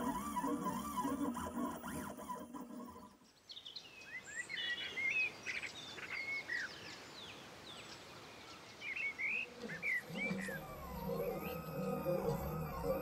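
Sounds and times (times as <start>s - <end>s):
songbirds chirping and whistling: 0.0s - 13.0s
faint background hiss: 3.2s - 10.5s.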